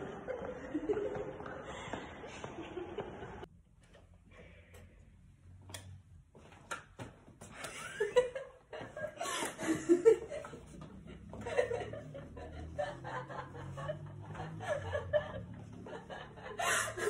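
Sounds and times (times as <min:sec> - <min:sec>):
people chuckling: 0:00.0 - 0:03.5, 0:07.6 - 0:17.0.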